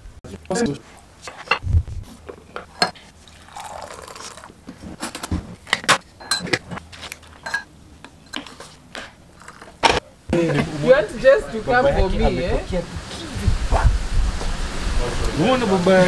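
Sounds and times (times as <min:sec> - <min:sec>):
coffee pouring into a mug: 0:03.3 - 0:04.6.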